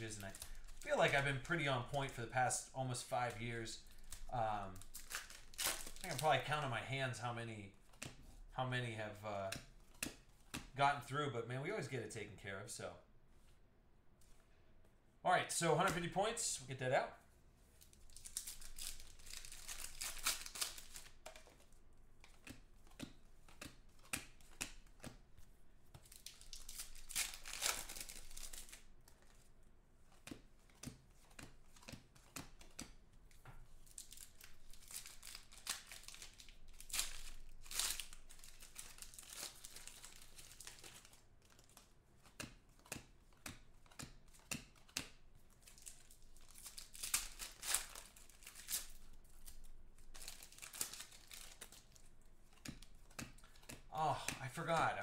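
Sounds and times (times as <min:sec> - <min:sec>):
foil wrappers crinkling and tearing: 0:00.0 - 0:02.2, 0:02.9 - 0:06.7, 0:17.9 - 0:21.2, 0:26.0 - 0:29.5, 0:33.7 - 0:41.9, 0:44.8 - 0:55.0
cards clicking and rustling: 0:02.8 - 0:06.5, 0:07.8 - 0:08.4, 0:09.4 - 0:10.8, 0:17.8 - 0:55.0.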